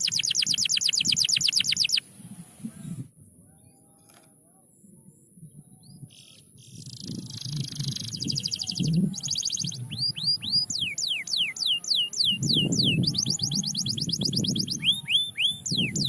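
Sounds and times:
canary singing: 0.0s - 2.1s, 6.2s - 16.0s.

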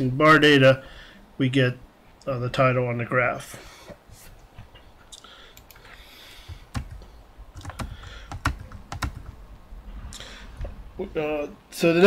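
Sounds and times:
computer keyboard key presses: 6.5s - 9.4s.

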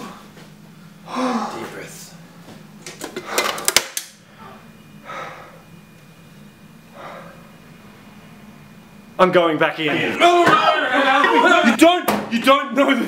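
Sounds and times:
man breathing deeply: 3.2s - 5.8s, 6.9s - 7.6s.

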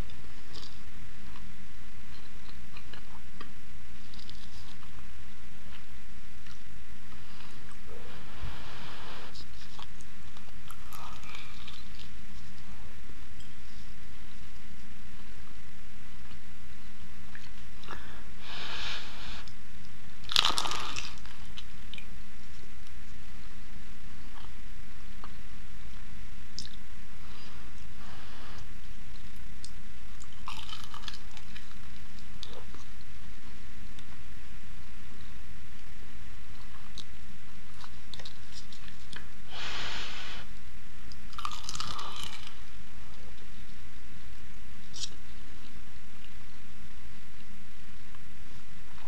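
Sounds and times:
soft crisp rustle: 0.0s - 41.6s
short hiss: 18.4s - 19.5s, 39.5s - 40.5s.

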